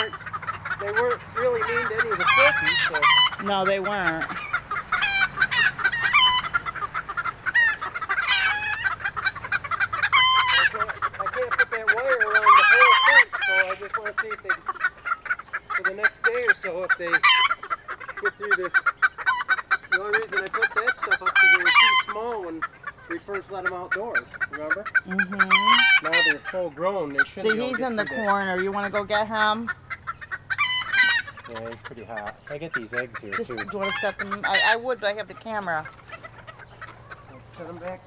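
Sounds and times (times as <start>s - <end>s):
chickens clucking and squawking: 0.0s - 38.0s.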